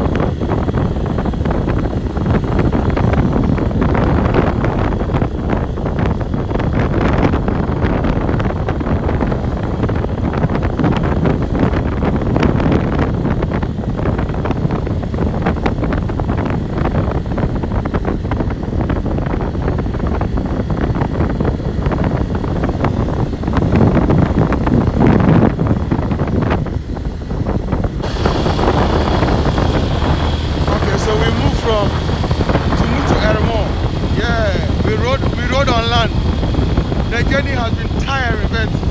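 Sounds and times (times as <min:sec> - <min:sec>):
wind buffeting microphone: 0:00.0 - 0:38.9
motorcycle engine: 0:25.7 - 0:38.9.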